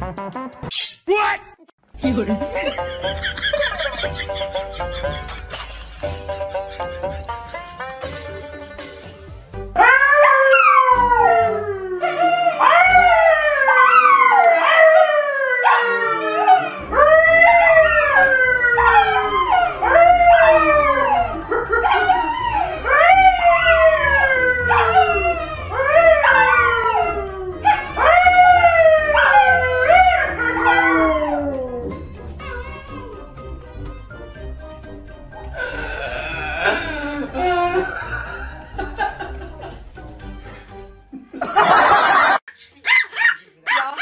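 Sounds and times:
dogs howling: 9.8s - 33.4s
man howling: 35.6s - 38.1s.

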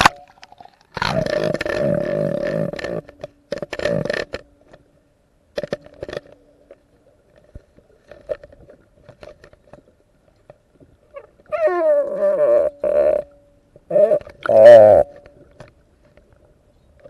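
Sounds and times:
faint scrapes and clicks: 0.0s - 11.5s, 15.1s - 17.0s
low steady hum: 0.0s - 17.0s.

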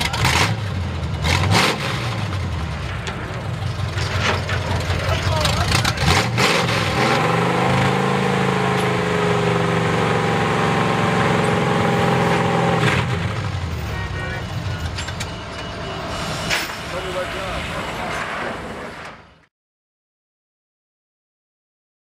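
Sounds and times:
truck engine revving: 0.0s - 19.4s.

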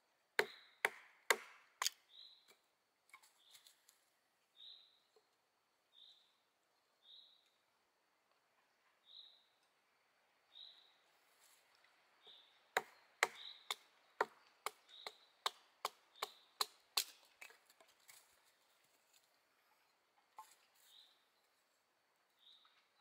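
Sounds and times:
bird chirping: 1.9s - 2.6s, 4.5s - 7.7s, 8.6s - 11.1s, 12.0s - 17.2s, 22.3s - 23.0s.

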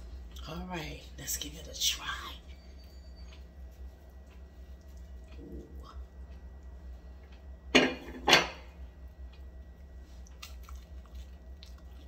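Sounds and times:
faint chewing crunches: 3.2s - 7.6s, 9.1s - 12.0s
tortilla chip crunching: 10.2s - 12.0s.

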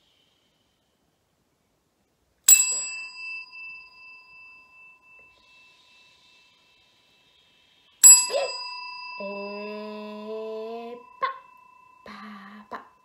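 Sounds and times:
desk bell ringing: 2.5s - 5.4s, 8.0s - 13.0s
woman's long held vocal sound: 8.2s - 13.0s.

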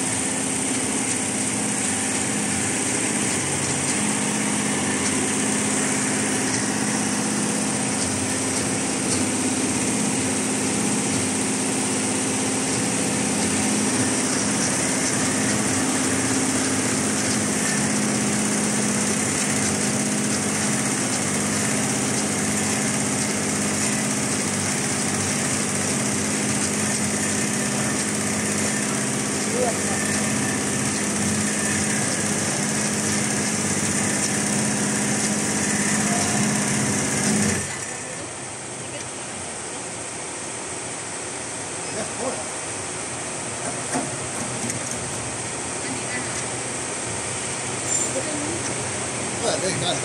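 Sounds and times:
embroidery machine whirring: 0.0s - 38.9s, 40.8s - 50.0s.

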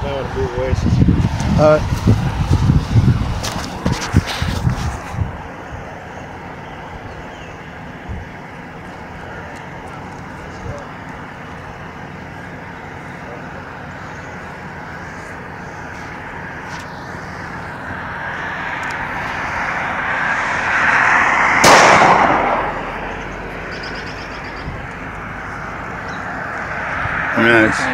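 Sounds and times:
car passing on road: 0.0s - 27.9s
handgun shot: 21.6s - 22.6s.

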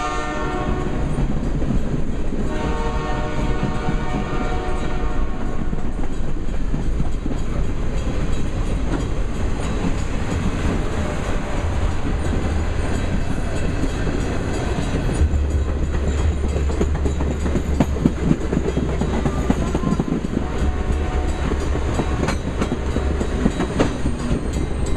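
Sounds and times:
train rolling past rumble: 0.0s - 24.9s
wheels clattering over rail joints: 5.6s - 24.9s.

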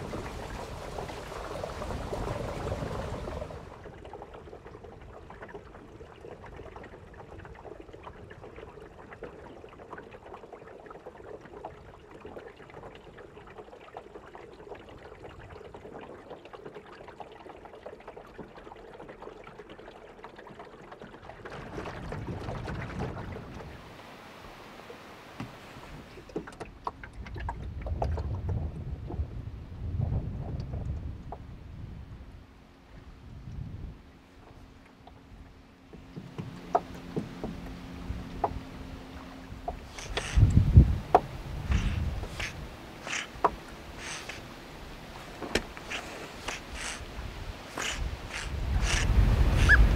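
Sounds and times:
wind buffeting microphone: 0.0s - 3.9s, 27.1s - 32.4s, 33.0s - 34.0s, 39.5s - 49.9s
water drips and splashes: 0.0s - 23.9s, 25.4s - 29.2s, 34.4s - 49.9s
water lapping around boat: 0.0s - 49.9s.

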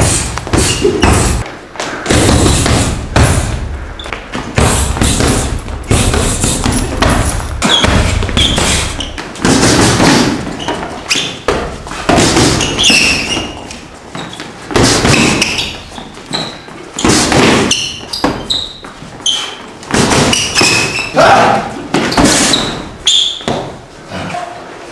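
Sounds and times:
punches thudding into punching bag: 2.0s - 3.7s, 4.3s - 10.6s, 11.4s - 13.2s, 14.7s - 15.5s, 17.0s - 18.5s, 19.9s - 20.9s.

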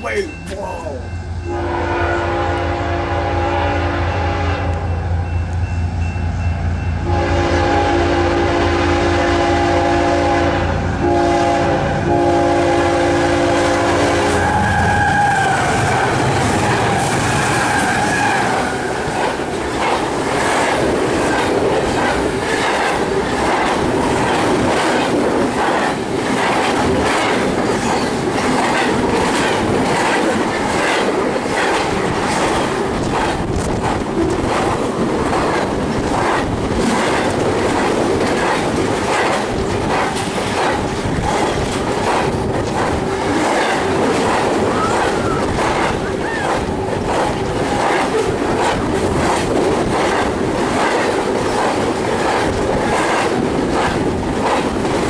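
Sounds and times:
freight train rumble: 0.0s - 55.0s
train horn: 1.4s - 5.2s, 7.0s - 16.3s
wheels clacking over rail joints: 16.1s - 55.0s.

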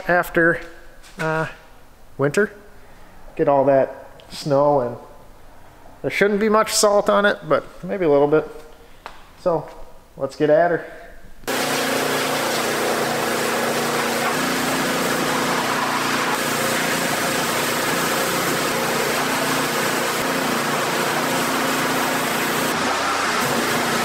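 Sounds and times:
high-pressure water spray hissing: 11.5s - 24.0s
pressure washer motor droning: 11.5s - 24.0s.

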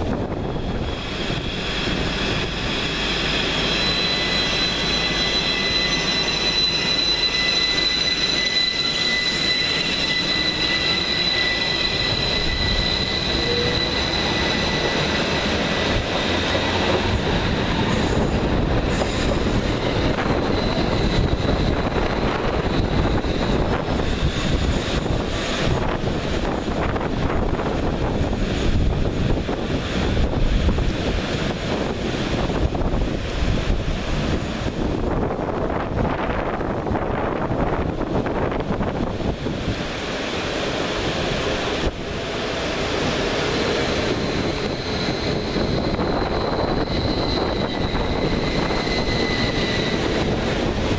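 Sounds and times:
train wheels rumbling on rails: 0.0s - 50.9s
steady high-pitched tone: 1.1s - 23.8s.

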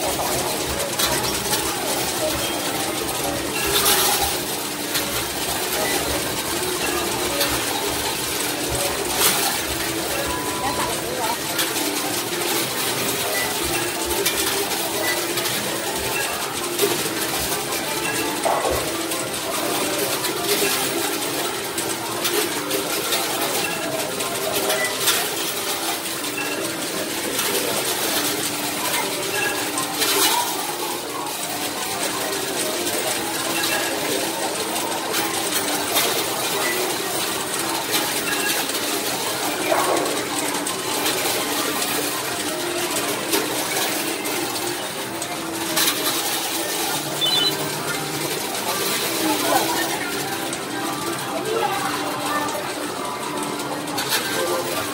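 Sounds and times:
tokens clinking and dropping: 0.0s - 51.6s
din of machine tones: 46.9s - 48.0s.

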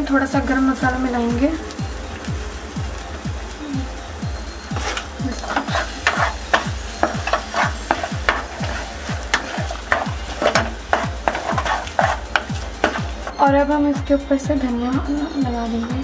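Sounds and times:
background music: 0.0s - 16.0s
light sizzle: 0.0s - 16.0s
spatula scraping a frying pan: 4.8s - 13.3s.

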